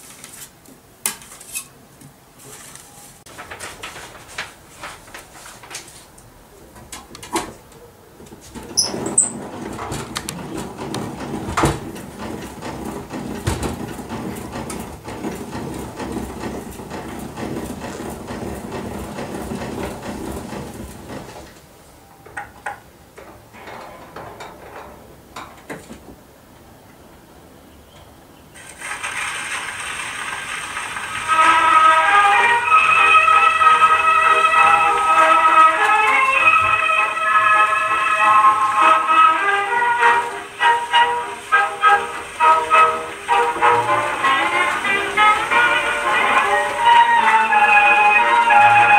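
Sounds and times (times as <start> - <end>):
gramophone clicks and knocks: 8.2 - 21.6.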